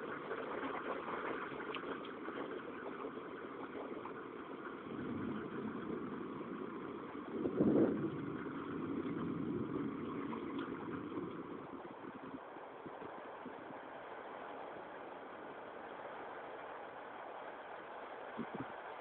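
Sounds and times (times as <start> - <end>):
rain hiss: 0.0 - 19.0
low thunder rumble: 3.7 - 14.0.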